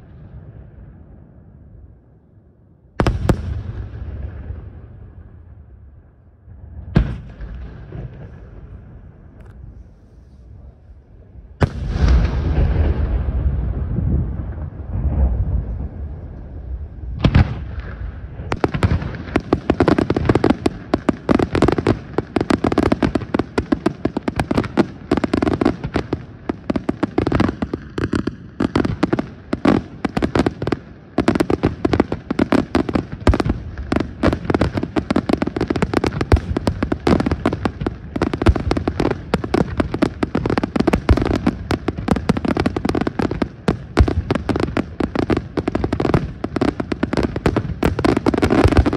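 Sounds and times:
fireworks rumble: 0:02.8 - 0:48.9
fireworks barrage of bangs and crackles: 0:03.0 - 0:05.8, 0:06.5 - 0:48.9
loud firework bang: 0:11.6 - 0:16.2, 0:17.2 - 0:19.4.

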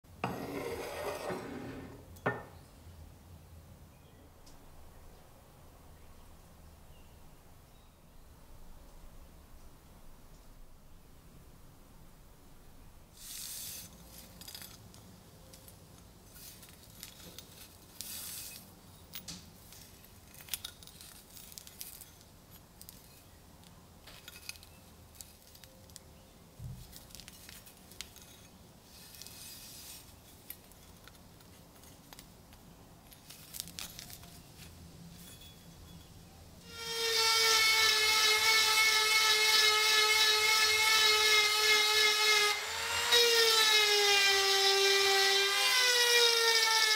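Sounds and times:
rotary tool high whine: 0:36.6 - 0:46.9.

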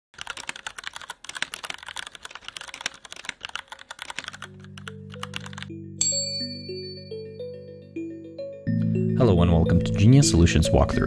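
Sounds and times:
rapid typing on keyboard: 0:00.2 - 0:05.7.

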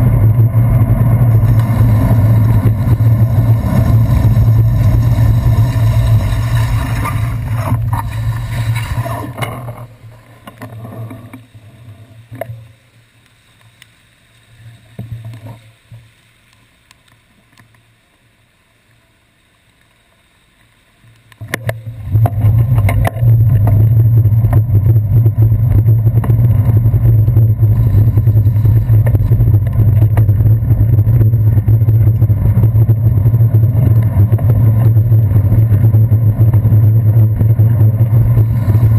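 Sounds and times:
bicycle rumble on wet streets: 0:00.0 - 0:15.9, 0:21.3 - 0:38.9.

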